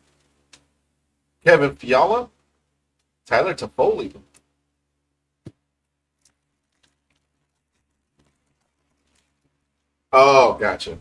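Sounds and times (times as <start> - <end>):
foil wrapper crinkling: 5.8 - 10.1.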